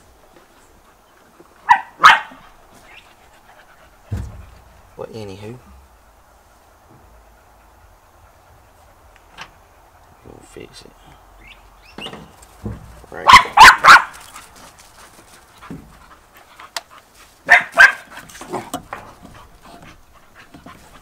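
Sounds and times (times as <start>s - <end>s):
dog barking: 1.6s - 2.4s, 13.2s - 14.2s, 17.4s - 18.1s.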